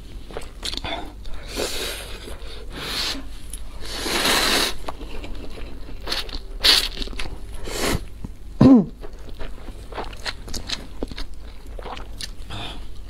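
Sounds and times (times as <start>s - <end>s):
chewing: 4.8s - 7.6s, 9.0s - 12.5s.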